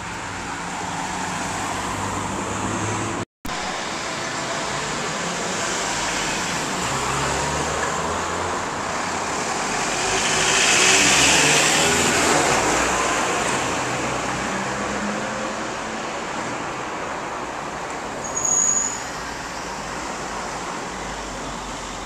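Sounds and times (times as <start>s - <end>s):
truck passing close by: 0.0s - 16.8s
car engines: 0.0s - 22.0s
tyres on the road: 0.0s - 22.0s.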